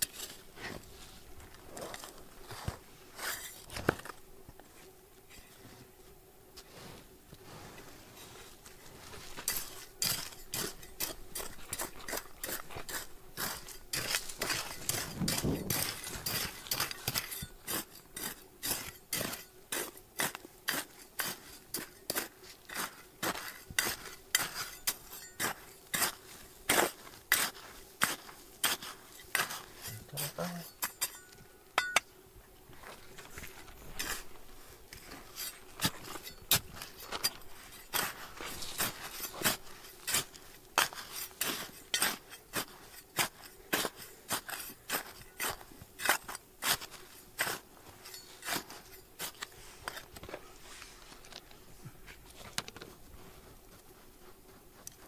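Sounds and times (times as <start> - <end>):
metal tool clinking on stones: 13.6 - 18.1, 23.8 - 26.1, 29.4 - 32.1, 48.0 - 49.4.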